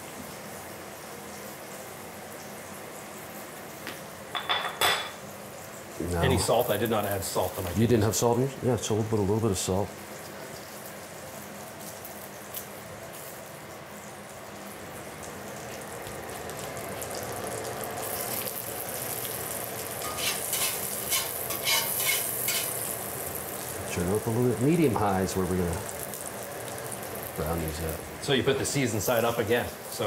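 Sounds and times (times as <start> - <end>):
potatoes sizzling in butter: 5.2 - 30.0
crackling and spitting butter: 15.3 - 30.0.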